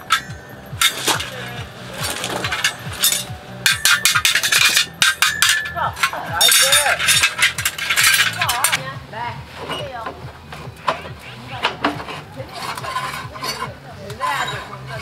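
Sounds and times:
rapid irregular clicks and knocks: 0.0 - 8.8.

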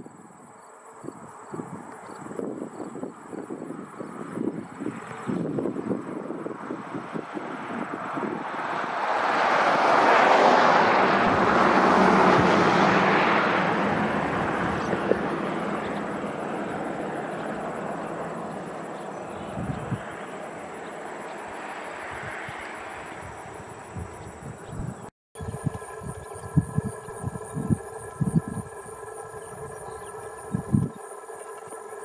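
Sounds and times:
aircraft passing overhead: 0.7 - 32.0.

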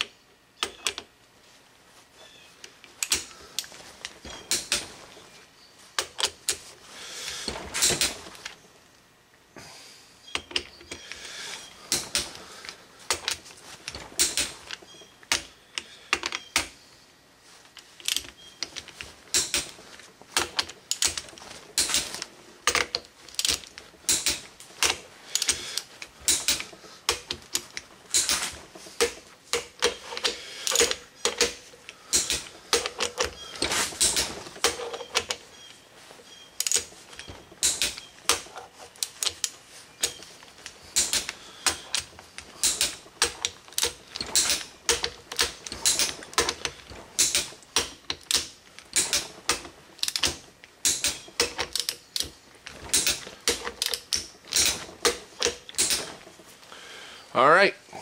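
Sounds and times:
hand ratchet clicking: 18.0 - 19.8, 20.4 - 35.4, 36.6 - 56.3.

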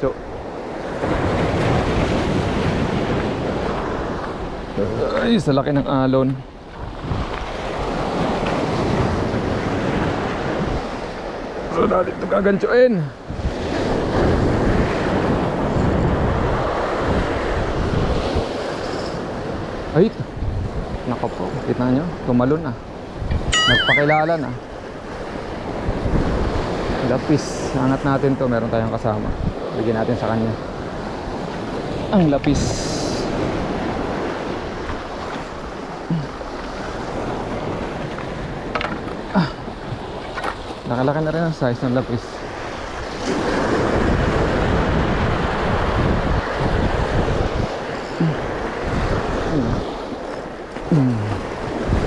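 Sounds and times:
wind buffeting microphone: 0.0 - 12.4, 13.1 - 41.0, 42.3 - 52.0
short sound falling in pitch: 23.5 - 24.2.

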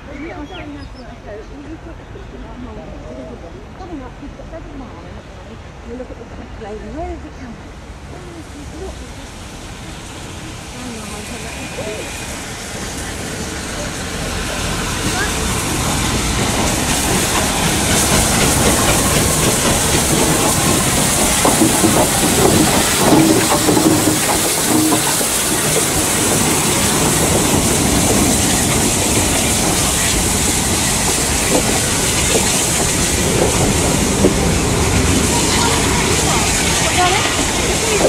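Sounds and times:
steam hissing: 8.4 - 38.0
train wheels clattering over rail joints: 11.1 - 38.0.

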